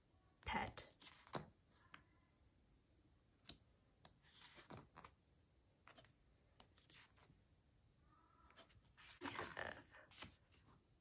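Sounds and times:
photobook pages turning: 0.9s - 2.0s, 3.4s - 5.2s, 5.8s - 7.4s, 8.4s - 10.7s.

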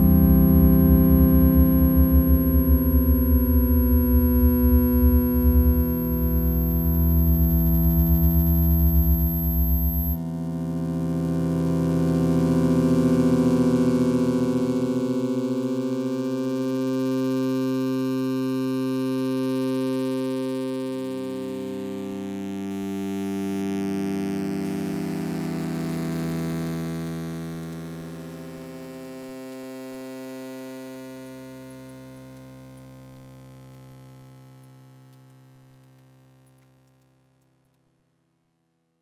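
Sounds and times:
film score drone of held chords: 0.0s - 18.2s.

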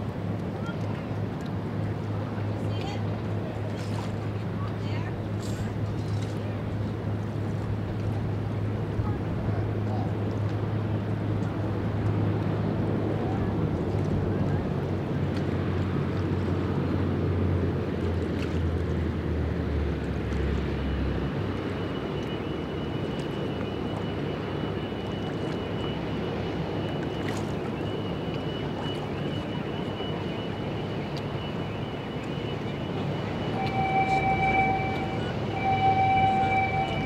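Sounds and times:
ship engines rumbling: 19.0s - 37.0s
thin high whine: 28.0s - 37.0s
deep hum: 30.8s - 37.0s.

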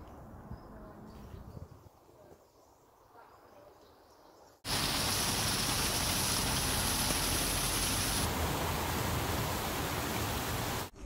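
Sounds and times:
stream rushing down waterfall: 4.7s - 10.9s.

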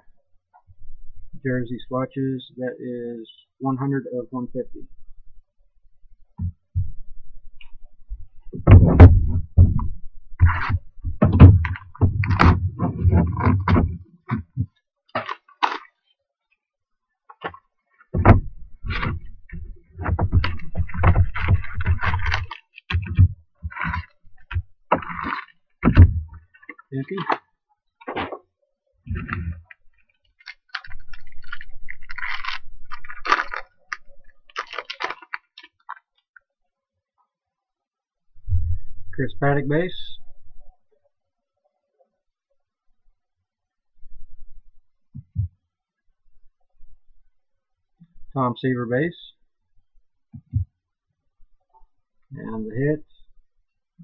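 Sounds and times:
rustling and knocking on table: 8.6s - 15.4s, 17.4s - 27.4s
foil packs crinkling and tearing: 15.2s - 16.0s, 20.4s - 24.2s, 25.0s - 25.6s, 29.2s - 36.1s.

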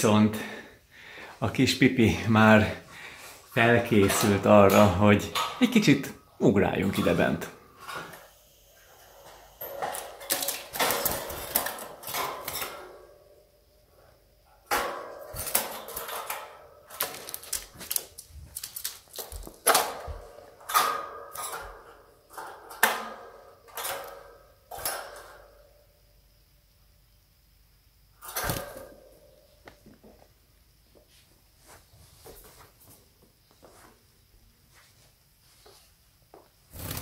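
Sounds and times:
wire birdcage rattling and clinking: 3.7s - 5.8s, 9.1s - 13.4s, 14.6s - 25.8s, 28.2s - 29.4s.

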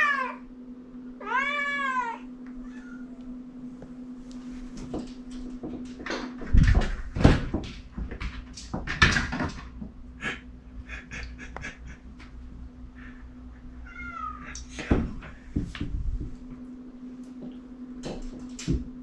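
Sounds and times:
steady low hum: 0.0s - 19.0s
thumps and knocks at door: 4.9s - 10.0s.

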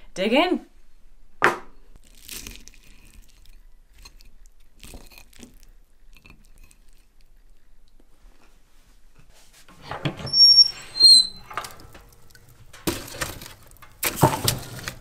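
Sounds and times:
short high squeaks: 10.2s - 12.5s
firewood knocking and scraping: 11.0s - 15.0s.

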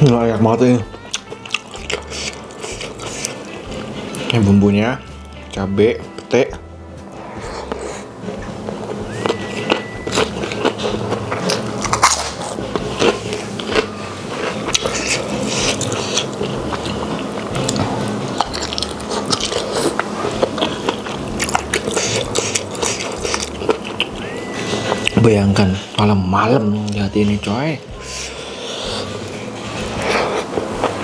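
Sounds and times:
wet smacking chewing: 1.0s - 4.4s, 7.5s - 25.2s
mouth and teeth clicks: 17.6s - 24.3s.

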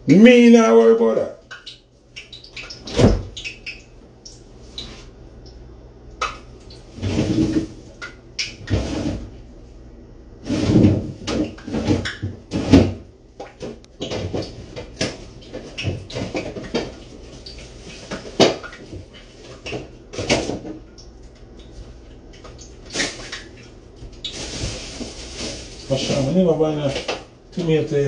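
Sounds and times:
food containers knocking and clunking: 10.6s - 20.9s.

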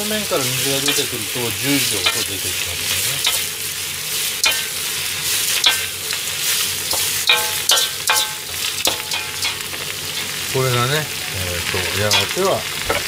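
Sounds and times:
vegetables sizzling in oil: 0.0s - 13.0s
metal ladle scraping a wok: 0.6s - 10.4s.

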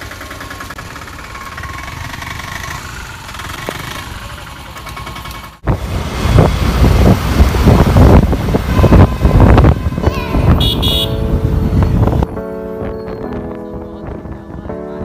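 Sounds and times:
motorcycle engine idling: 0.0s - 5.6s
motorcycle riding rumble: 0.0s - 15.0s
wind buffeting microphone: 5.6s - 14.9s.

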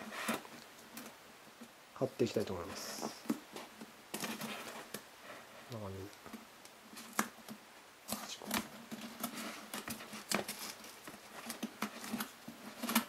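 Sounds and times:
foam rubbing and clicking: 2.3s - 6.3s, 6.9s - 13.0s.

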